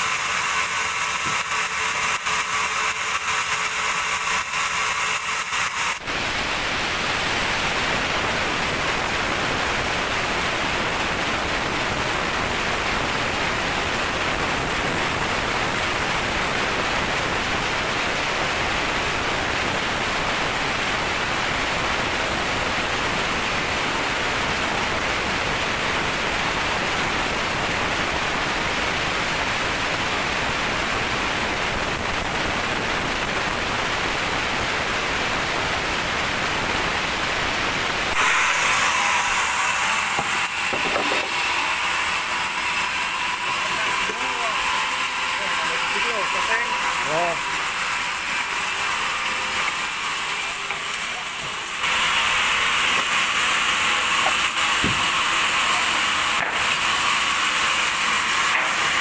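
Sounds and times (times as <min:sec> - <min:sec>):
band saw cutting log: 0:00.0 - 0:22.4, 0:36.4 - 0:59.0
lighter machine noise: 0:04.3 - 0:59.0.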